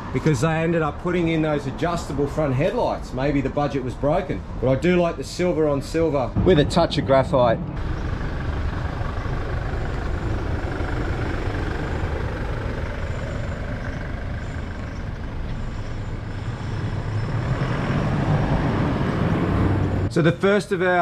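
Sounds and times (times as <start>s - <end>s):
diesel engine driving past: 4.3s - 20.1s.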